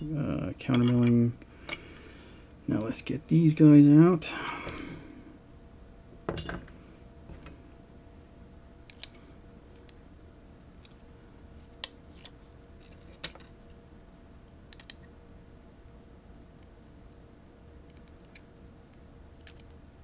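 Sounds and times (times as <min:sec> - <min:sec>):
small metal clicks of lock parts: 0:14.7 - 0:15.0, 0:19.4 - 0:19.7.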